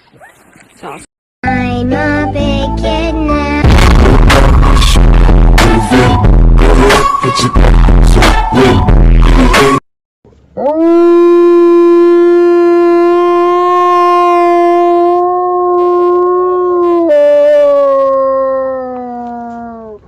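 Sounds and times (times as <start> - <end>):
wolf howling: 10.6 - 20.0.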